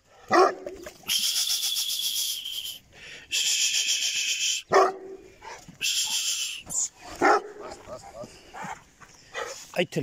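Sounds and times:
dog barking: 0:00.3 - 0:00.8, 0:04.7 - 0:05.6, 0:07.1 - 0:09.6.

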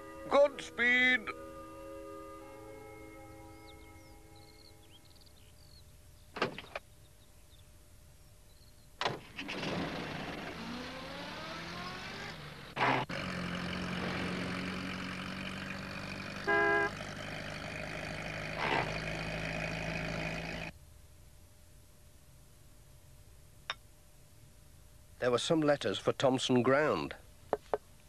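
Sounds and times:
van engine pulling away: 0:09.0 - 0:20.7
short horn toot: 0:16.4 - 0:17.0.

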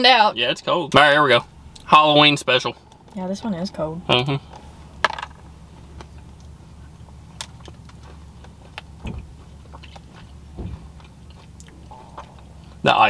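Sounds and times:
car interior rumble: 0:00.0 - 0:13.0
people chewing cookies: 0:05.4 - 0:12.8.

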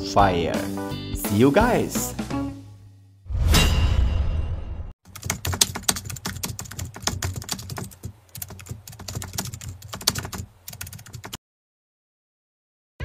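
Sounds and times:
keyboard typing: 0:05.1 - 0:11.4.

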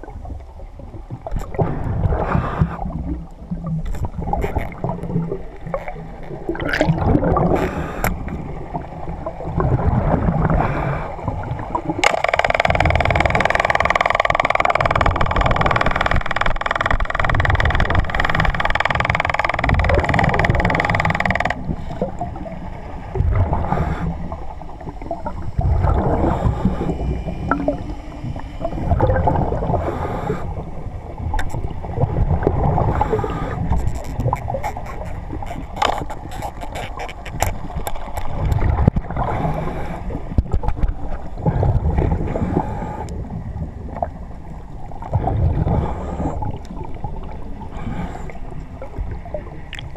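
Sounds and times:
underwater water sloshing: 0:00.0 - 0:49.9
sharp clicks: 0:12.0 - 0:21.6.

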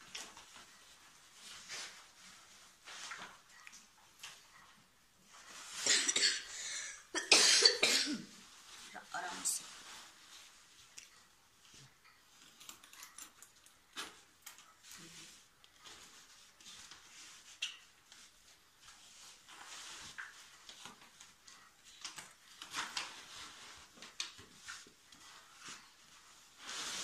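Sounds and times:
fabric bag rustling: 0:14.0 - 0:27.0.

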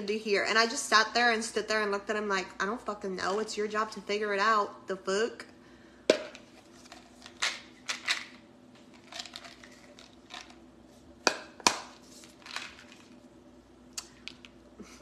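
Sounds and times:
faint steady hum: 0:00.0 - 0:15.0
handling clicks and crinkles: 0:06.4 - 0:10.6.

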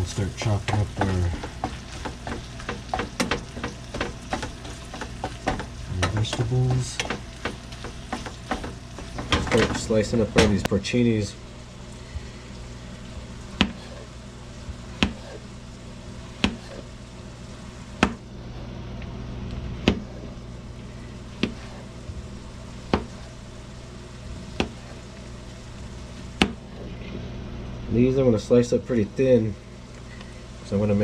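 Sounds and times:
meat frying in a pan: 0:00.0 - 0:18.3, 0:19.6 - 0:26.8
knife tapping cutting board: 0:00.7 - 0:09.8, 0:15.0 - 0:15.2, 0:16.4 - 0:16.7
knife slicing mushrooms: 0:13.6 - 0:14.1, 0:14.9 - 0:15.4, 0:16.4 - 0:16.9, 0:21.4 - 0:21.9.

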